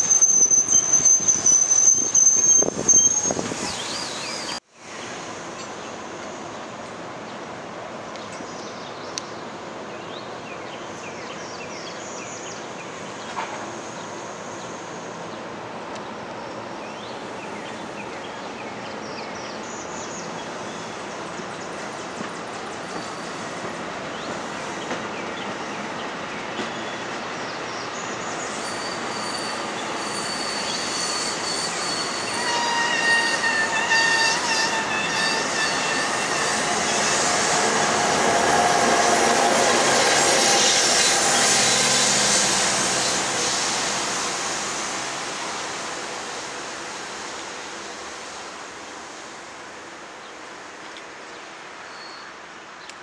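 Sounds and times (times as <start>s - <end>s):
high wheel squeals: 0.0s - 4.6s, 28.4s - 46.4s
steel wheels rushing on rail: 12.4s - 50.4s.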